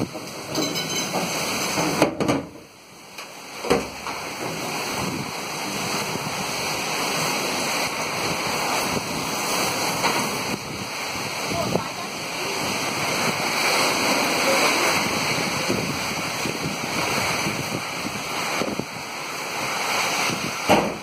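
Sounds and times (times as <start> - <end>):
heavy rain: 0.0 - 21.0
wind buffeting microphone: 4.5 - 21.0.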